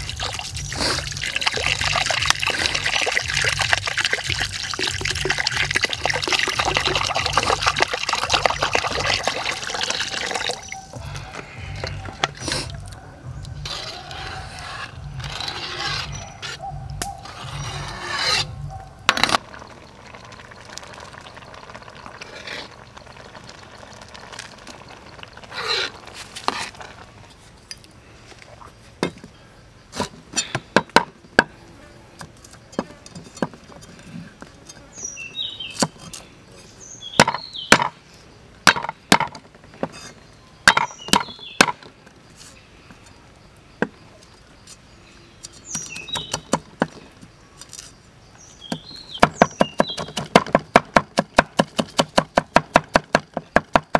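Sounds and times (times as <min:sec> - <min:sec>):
metal ladle scraping wok: 0:13.6 - 0:16.6, 0:17.2 - 0:18.6.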